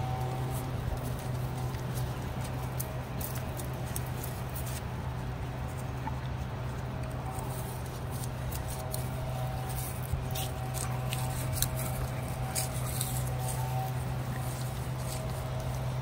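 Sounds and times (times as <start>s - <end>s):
dogs rummaging through dry leaves: 0.0s - 5.8s, 6.4s - 16.0s
steady low hum: 0.0s - 16.0s
leaves and twigs snapping: 7.3s - 15.8s.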